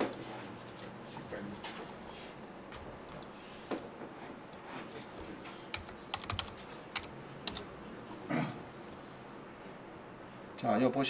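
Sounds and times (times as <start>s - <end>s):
computer keyboard typing: 2.7s - 3.3s, 4.5s - 7.7s.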